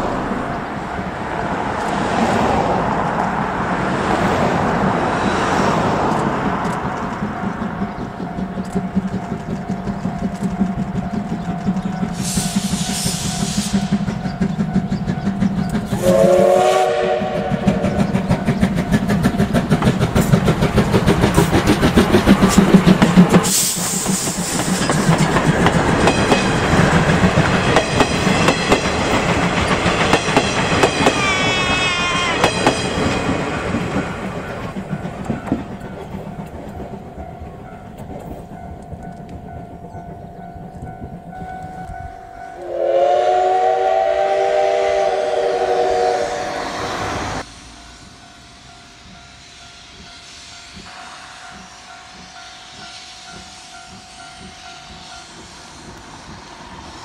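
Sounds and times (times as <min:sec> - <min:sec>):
steam locomotive chuffing: 0:00.0 - 0:57.0
train coaches clattering: 0:00.0 - 0:57.0
steam whistle blast: 0:12.2 - 0:13.9, 0:16.0 - 0:18.1, 0:42.6 - 0:48.1.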